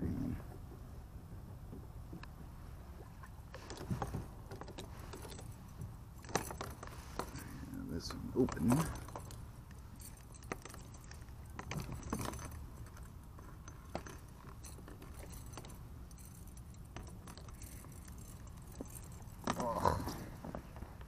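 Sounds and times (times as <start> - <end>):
low steady rumble: 0.0 - 21.0
metal chain clinking: 3.7 - 20.5.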